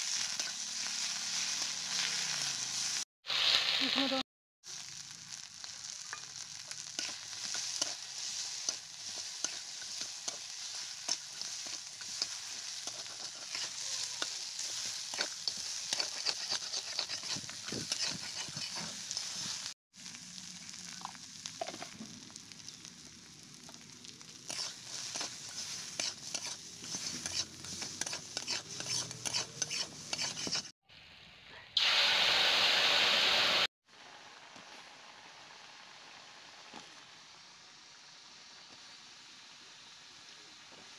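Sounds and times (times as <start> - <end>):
crab sizzling in hot oil: 0.0 - 30.7, 31.8 - 40.9
water hissing in hot wok: 0.0 - 31.2, 31.8 - 40.9
metal spatula scraping wok: 0.1 - 3.0, 6.1 - 19.7, 24.4 - 30.7.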